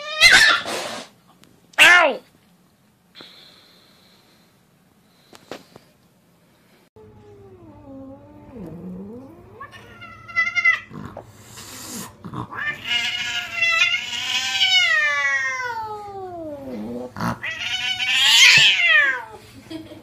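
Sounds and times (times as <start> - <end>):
cat yowling: 0.0 - 0.7, 7.2 - 10.9, 12.5 - 19.4
cat hissing: 0.0 - 1.2, 8.4 - 19.4.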